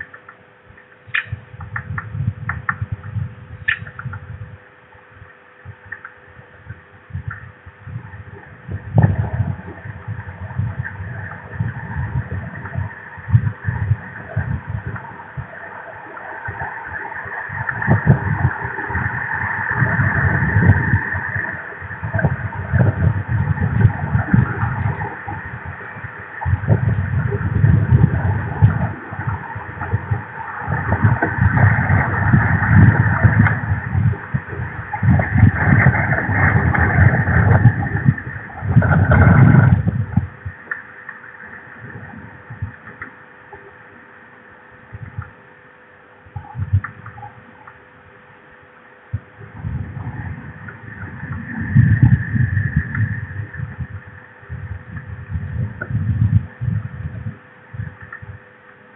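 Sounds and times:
gusty wind on microphone: 0.0 - 43.1, 44.8 - 45.6, 46.2 - 58.6
faint electrical hum: 0.0 - 58.9.

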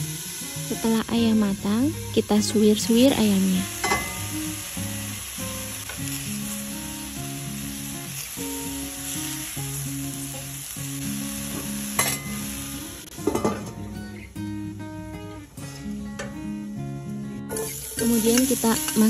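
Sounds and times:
chicken sizzling in a pan: 0.0 - 13.6, 17.5 - 19.0
background music: 0.0 - 19.0
steel lid clattering onto pan: 3.8 - 4.2, 12.0 - 12.3, 13.2 - 13.8.

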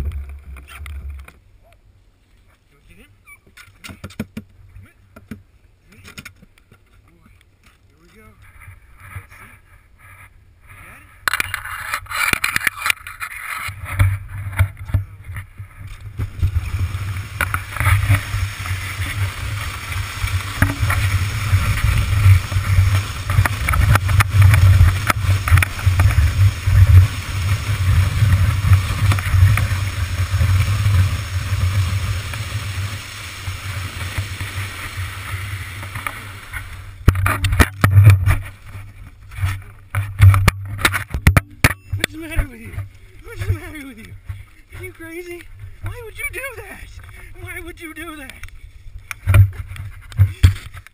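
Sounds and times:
wind rumble on microphone: 8.4 - 42.1
sled scraping on snow: 8.5 - 44.0
sled knocks and bumps: 11.2 - 46.9, 49.1 - 50.9.

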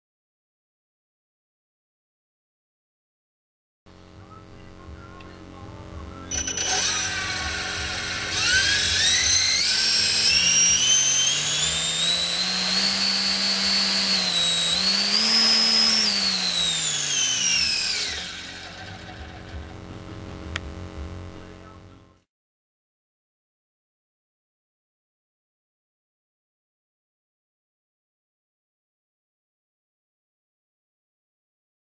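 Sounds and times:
electric motor propeller whine: 3.9 - 21.9.

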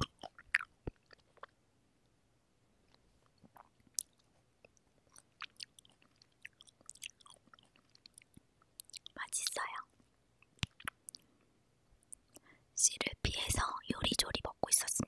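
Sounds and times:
close chewing with wet mouth smacks: 0.0 - 1.6, 2.9 - 9.6, 10.5 - 11.3.

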